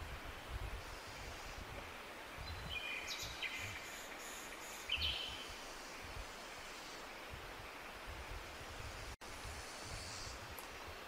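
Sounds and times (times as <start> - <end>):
background hiss: 0.0 - 11.0.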